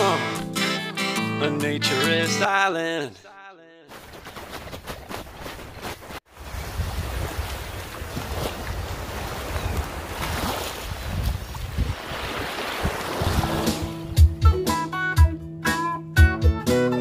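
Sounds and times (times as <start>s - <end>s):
small waves washing on beach: 5.4s - 14.0s
wind buffeting microphone: 6.4s - 14.1s.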